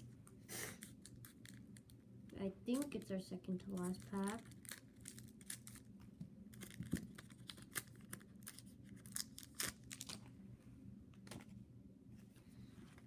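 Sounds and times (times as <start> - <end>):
foil pack tearing and crinkling: 3.7 - 5.9, 6.5 - 10.2.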